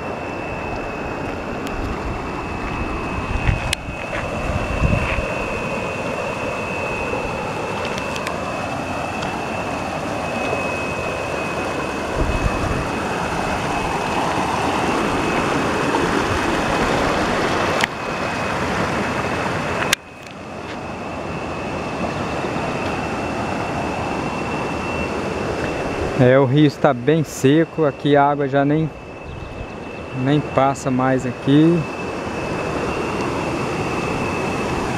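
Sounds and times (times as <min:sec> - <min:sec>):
thin high tone: 0:00.0 - 0:34.9
river water rushing over rocks: 0:12.9 - 0:19.8.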